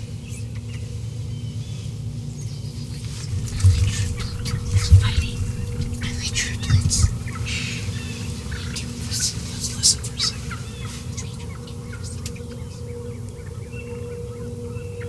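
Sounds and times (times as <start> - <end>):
small birds chirping: 0.2 - 15.0
turkeys gobbling: 3.2 - 12.7.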